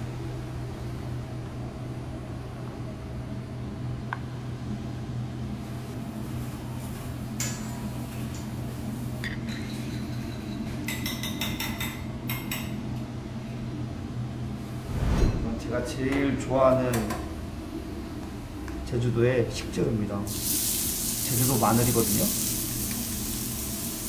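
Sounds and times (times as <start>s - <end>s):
steady low hum: 13.2s - 20.2s.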